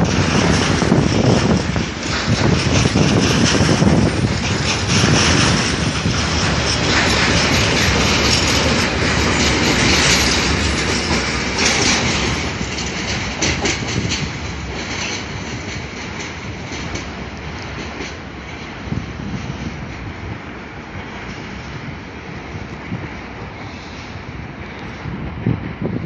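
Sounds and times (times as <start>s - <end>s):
wheels clicking over rail joints: 0.0s - 24.0s
freight train rolling past: 0.0s - 26.0s.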